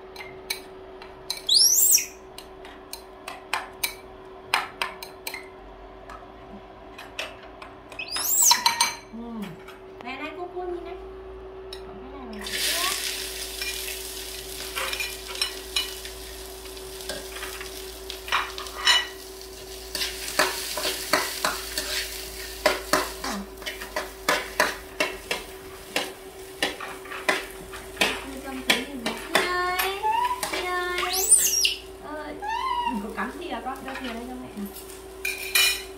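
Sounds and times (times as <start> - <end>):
monkey squeaky calls: 1.5 - 2.2, 8.0 - 8.8, 30.0 - 33.2
vegetables sizzling in a wok: 12.4 - 35.9.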